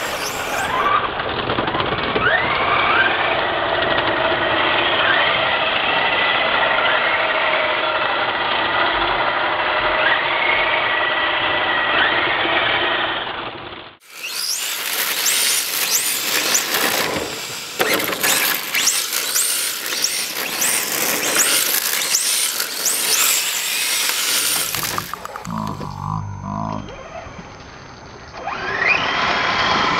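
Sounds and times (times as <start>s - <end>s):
electric motor whine: 0.0s - 0.9s, 14.0s - 29.9s
tyres scrubbing on asphalt: 14.2s - 25.5s.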